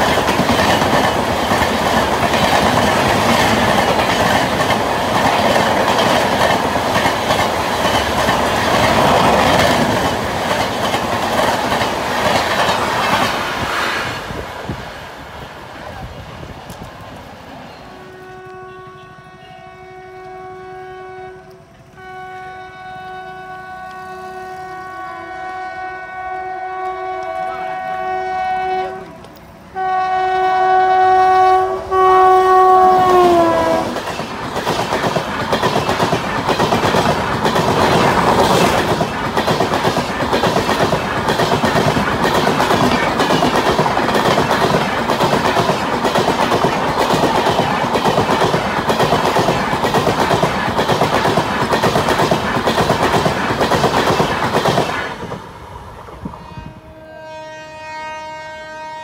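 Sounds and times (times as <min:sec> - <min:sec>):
train wheels clickety-clack: 0:00.0 - 0:14.8, 0:15.8 - 0:17.3, 0:32.8 - 0:56.5
train horn: 0:17.7 - 0:34.0, 0:56.3 - 0:59.0.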